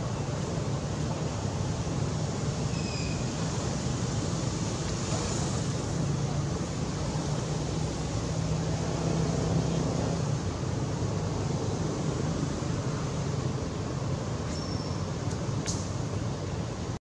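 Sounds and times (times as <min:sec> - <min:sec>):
low rumble and hiss: 0:00.0 - 0:17.0
faint high chirp: 0:02.7 - 0:03.4, 0:14.5 - 0:15.1.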